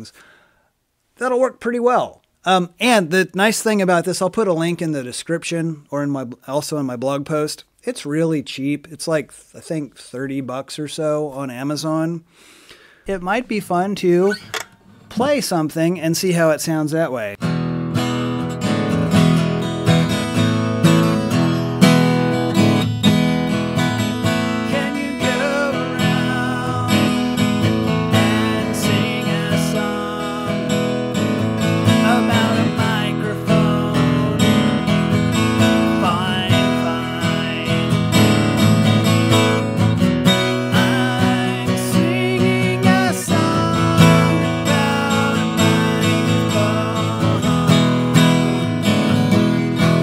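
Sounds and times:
acoustic guitar strumming: 17.4s - 50.0s.

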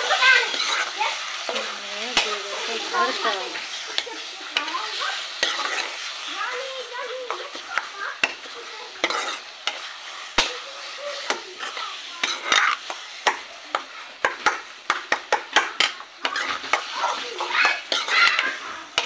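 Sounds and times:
spices sizzling in oil: 0.0s - 19.0s
spoon clinking against pan: 7.3s - 10.6s, 11.3s - 19.0s.

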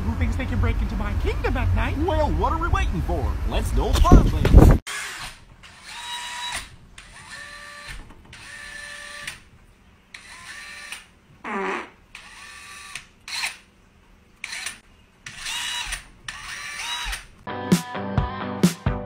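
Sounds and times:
cordless drill motor whining: 4.9s - 9.4s, 10.2s - 11.1s, 14.4s - 17.3s.

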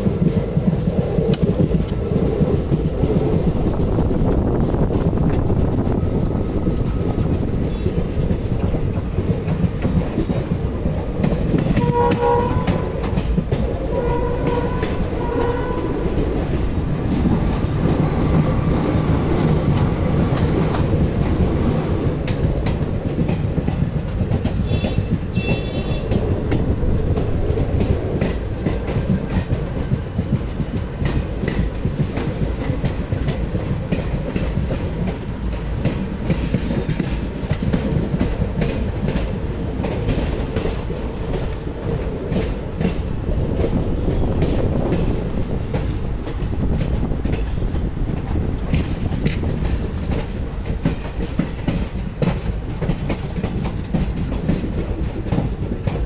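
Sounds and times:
train wheels clickety-clack: 0.0s - 56.0s
train horn blasts: 11.7s - 13.2s, 13.9s - 16.2s, 24.6s - 26.2s.

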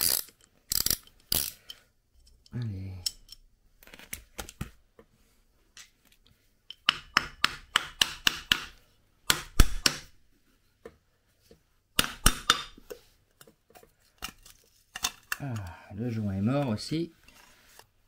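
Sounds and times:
sharp metallic knocks and clicks: 6.7s - 10.1s, 12.0s - 12.8s.

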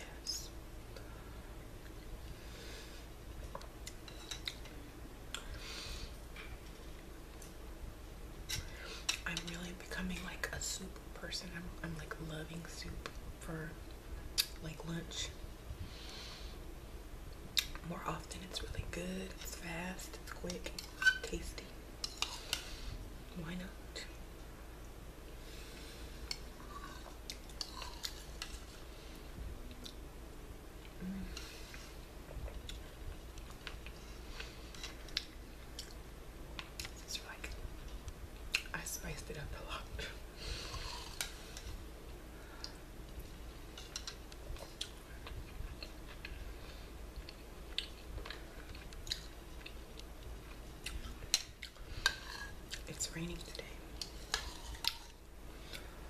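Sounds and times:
person chewing: 3.4s - 5.6s, 26.2s - 28.8s, 30.8s - 36.0s, 40.5s - 41.8s, 42.6s - 52.9s, 54.0s - 55.9s.

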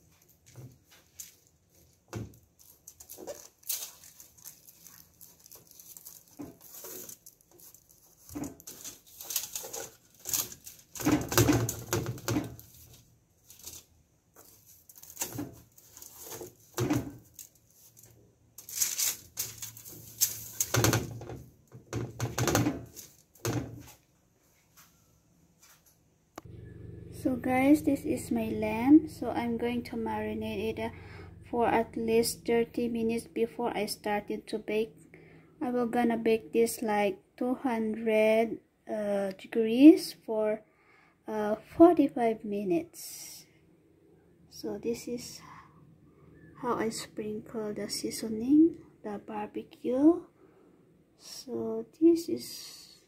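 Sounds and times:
aluminium foil crinkling: 0.0s - 21.2s.

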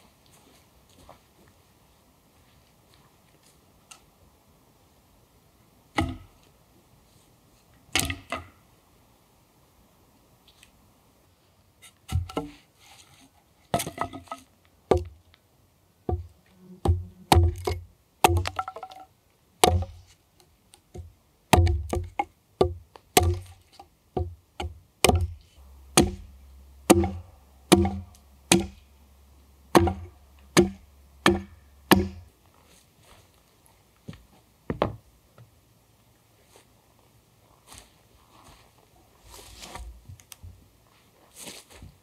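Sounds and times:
tool chopping wood: 6.0s - 6.3s, 8.0s - 8.5s, 16.1s - 19.0s, 19.6s - 20.0s, 21.0s - 23.6s, 24.2s - 28.8s, 29.7s - 32.3s.

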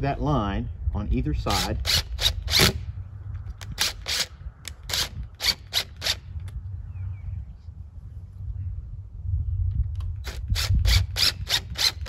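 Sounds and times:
impact driver driving a screw: 1.5s - 2.8s, 3.6s - 6.2s, 10.2s - 12.0s.

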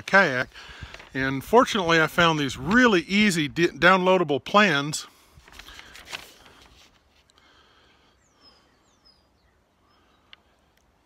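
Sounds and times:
paper rustling: 0.0s - 1.8s, 5.2s - 7.3s
faint high bird chirps: 8.2s - 10.3s.

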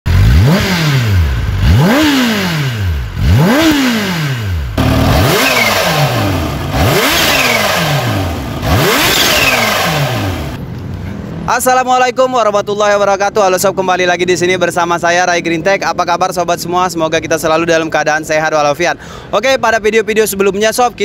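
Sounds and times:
motorcycle engine revving: 0.0s - 10.6s
supercharger whistle: 7.0s - 7.9s, 8.7s - 10.3s.

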